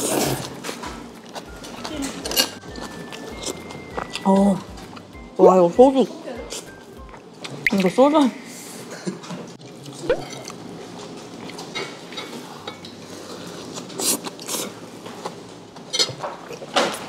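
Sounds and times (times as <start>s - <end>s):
chewing: 0.0s - 5.1s, 9.6s - 17.0s
wet mouth sounds: 9.8s - 10.6s.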